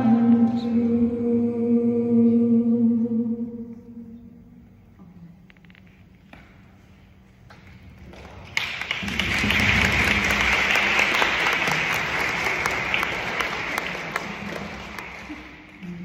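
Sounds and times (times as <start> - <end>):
audience applause: 8.1 - 16.0.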